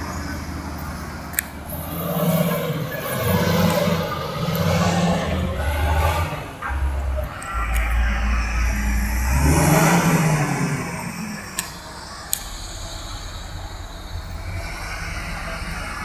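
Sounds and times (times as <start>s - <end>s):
diesel engine drone: 0.0s - 16.0s
sharp clicks: 1.3s - 2.1s, 11.2s - 13.2s.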